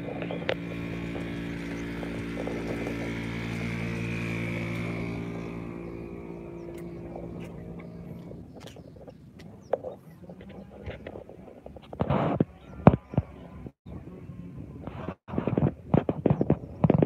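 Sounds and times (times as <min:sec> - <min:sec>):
helicopter flying past: 0:00.0 - 0:09.1.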